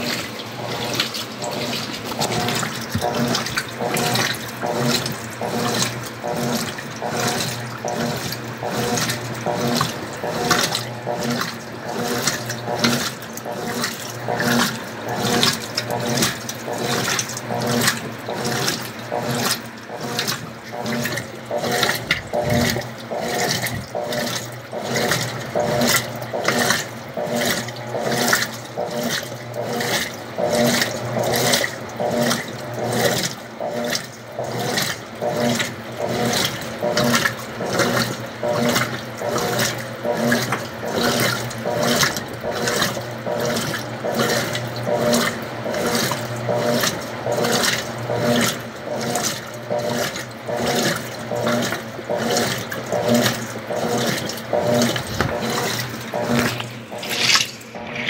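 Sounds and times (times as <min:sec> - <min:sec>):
washing machine sloshing: 0:00.0 - 0:58.0.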